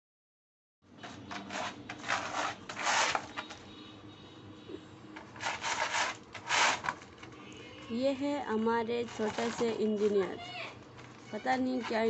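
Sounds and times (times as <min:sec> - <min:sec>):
claws scraping a doormat: 0:01.0 - 0:03.6, 0:05.2 - 0:07.4, 0:08.9 - 0:12.0.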